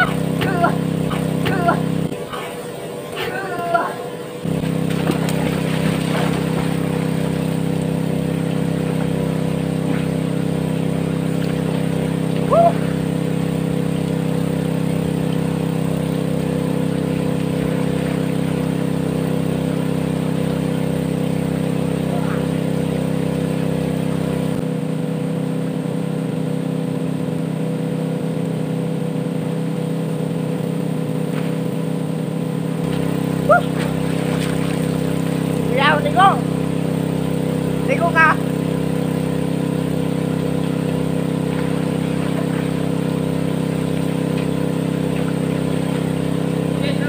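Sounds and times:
engine running steadily: 0.0 - 47.0.

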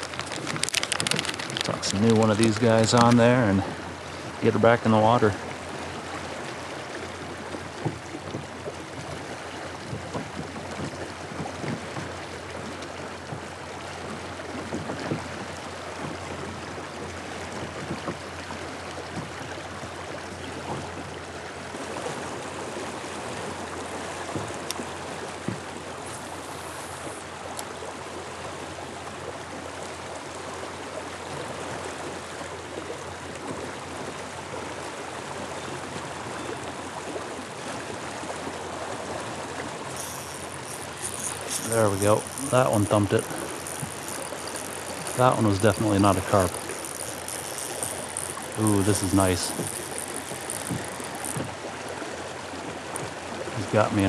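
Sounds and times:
river current rushing: 0.0 - 9.9, 21.3 - 35.4, 37.0 - 54.0.

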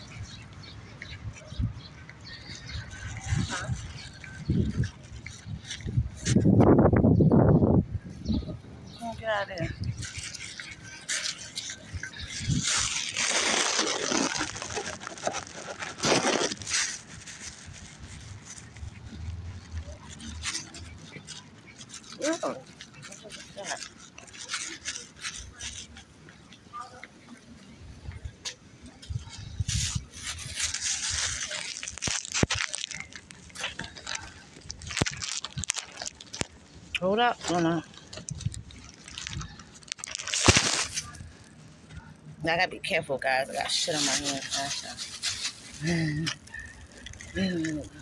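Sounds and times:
handling noise rustling: 9.0 - 42.3, 43.2 - 48.0.

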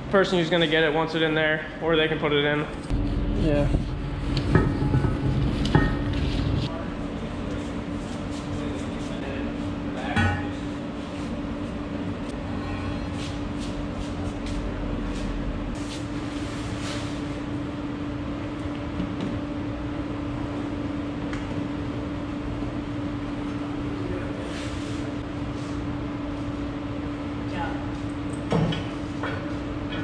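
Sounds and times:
steady machine hum: 0.0 - 30.0.

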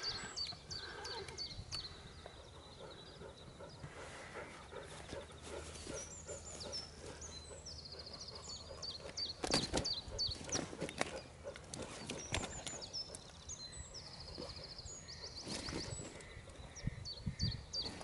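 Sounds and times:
songbirds chirping and trilling: 0.0 - 18.0.

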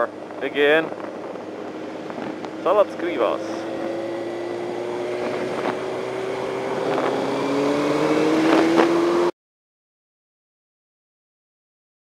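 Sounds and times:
motorcycle engine running: 0.0 - 9.3
wind rushing over microphone: 0.0 - 9.3.

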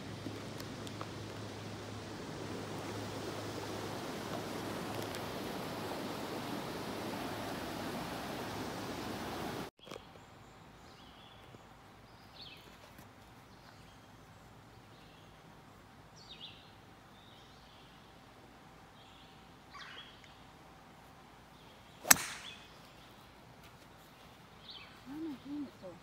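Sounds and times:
birds chirping: 21.5 - 26.0
golf driver striking ball: 22.0 - 22.6.

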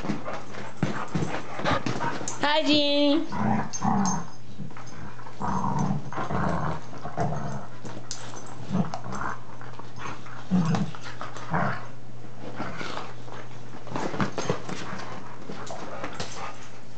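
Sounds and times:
dogs play-wrestling: 0.0 - 16.9.

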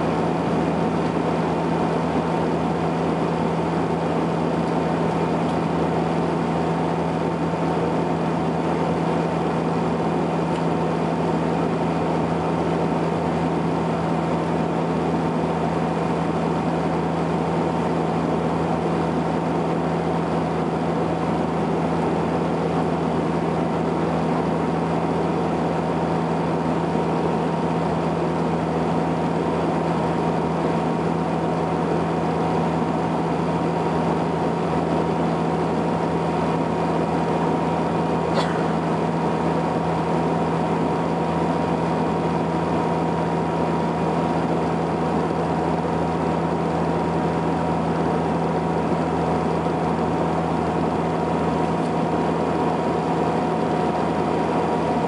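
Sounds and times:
turboprop engines droning in cabin: 0.0 - 55.0.

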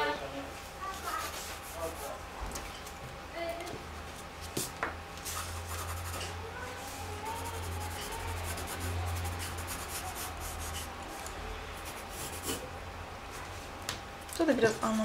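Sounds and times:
pencil scratching on paper: 5.3 - 6.3, 7.3 - 10.9, 11.8 - 12.7.

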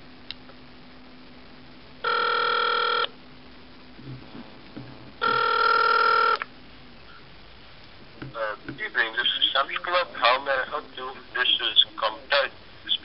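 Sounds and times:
telephone ringing over the phone: 2.0 - 3.1, 5.2 - 6.4.

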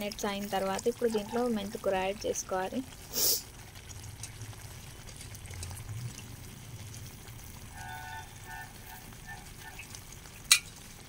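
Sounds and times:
curry bubbling in a pot: 0.0 - 11.0.

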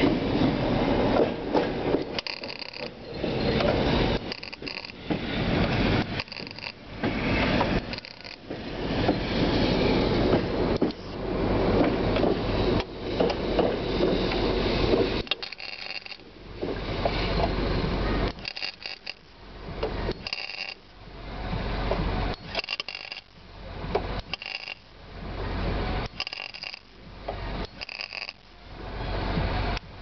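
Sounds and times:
welder crackling: 1.9 - 8.9, 14.9 - 19.5, 20.1 - 21.0, 22.4 - 23.4, 24.0 - 25.0, 26.0 - 28.6.

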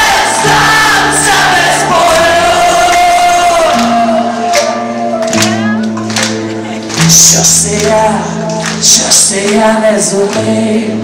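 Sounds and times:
crowd voices: 0.0 - 9.0.

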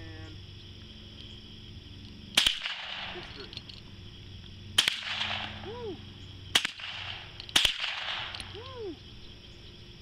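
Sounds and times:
rifle shots with echo: 2.4 - 3.3, 4.8 - 5.6, 6.5 - 8.4.

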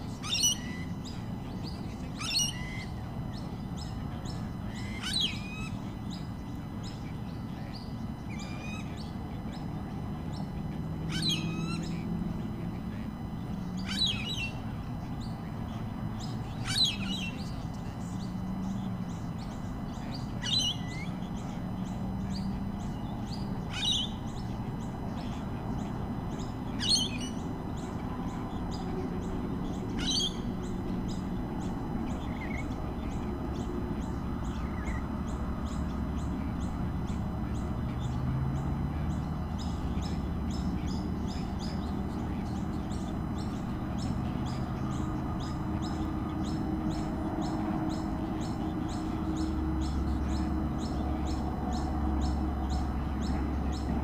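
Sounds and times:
low steady hum: 0.0 - 54.0
sharp downward bird calls: 2.1 - 3.0, 11.0 - 12.1, 29.6 - 30.5.

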